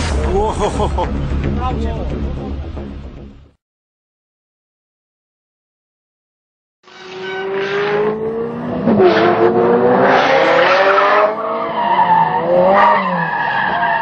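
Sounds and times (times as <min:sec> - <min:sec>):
tyres squealing and skidding: 0:06.9 - 0:09.4, 0:10.3 - 0:14.0
sports car engines revving: 0:07.4 - 0:13.4.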